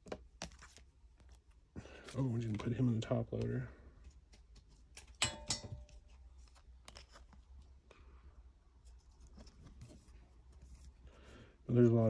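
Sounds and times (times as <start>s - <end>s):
plastic sleeves rustling: 6.0s - 8.1s.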